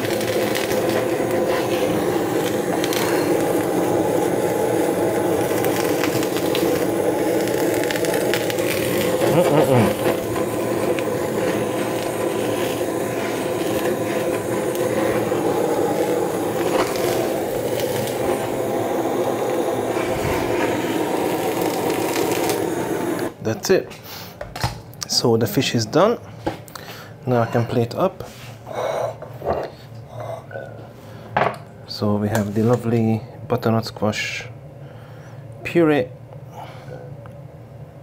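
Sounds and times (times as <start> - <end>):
butane torch burning: 0.0 - 23.7.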